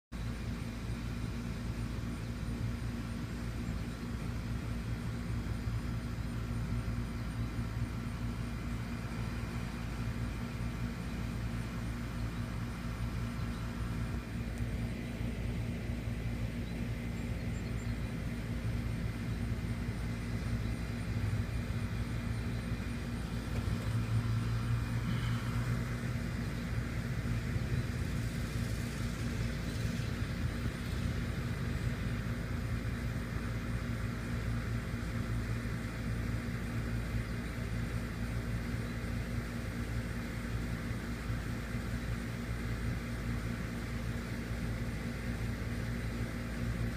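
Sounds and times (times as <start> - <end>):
steady low rumble: 0.2 - 35.9.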